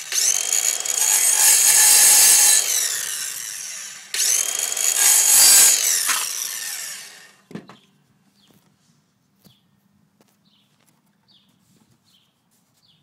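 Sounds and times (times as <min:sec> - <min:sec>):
circular saw cutting plastic: 0:00.0 - 0:07.4
thump: 0:07.5 - 0:07.8.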